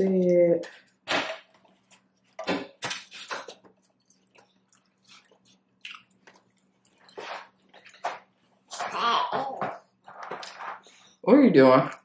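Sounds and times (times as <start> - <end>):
wet chewing smacks and clicks: 3.5 - 8.0.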